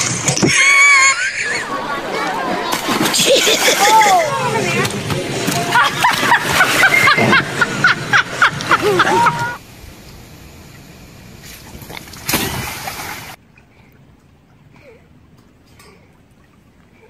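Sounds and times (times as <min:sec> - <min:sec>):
excited voices shouting: 0:00.5 - 0:09.6.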